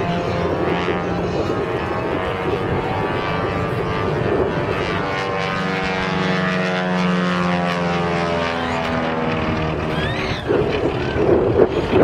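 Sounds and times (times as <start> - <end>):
propeller plane droning past: 0.0 - 12.0.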